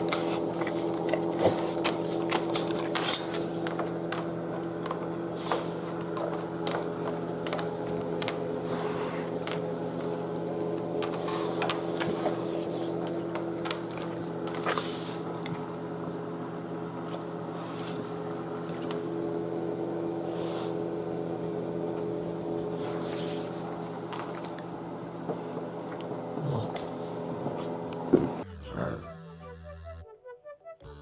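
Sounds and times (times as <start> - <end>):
dog chewing and licking: 0.0 - 15.6.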